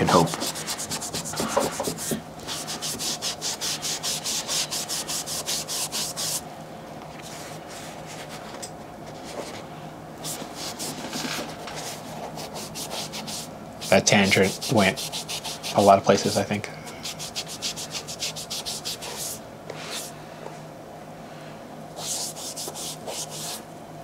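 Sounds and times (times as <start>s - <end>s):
rubbing and handling sounds: 0.0s - 6.4s, 7.1s - 15.9s, 17.0s - 20.2s, 22.0s - 23.6s
scrubbing on fabric: 11.8s - 15.8s, 17.1s - 20.1s.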